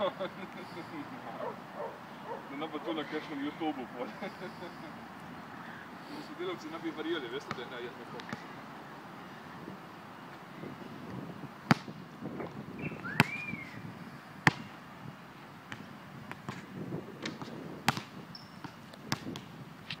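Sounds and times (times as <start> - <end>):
basketball bouncing on concrete: 7.4 - 8.4, 11.7 - 13.4, 14.4 - 14.7, 15.7 - 19.5.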